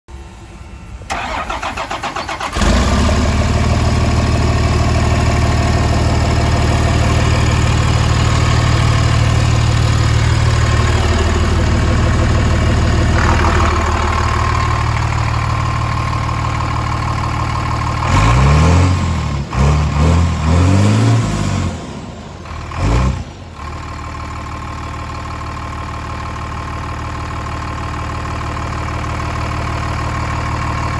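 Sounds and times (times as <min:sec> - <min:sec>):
diesel engine idling: 0:00.1 - 0:30.9
diesel engine cranking and starting: 0:00.4 - 0:30.9
engine revving: 0:01.1 - 0:16.7, 0:17.3 - 0:23.7.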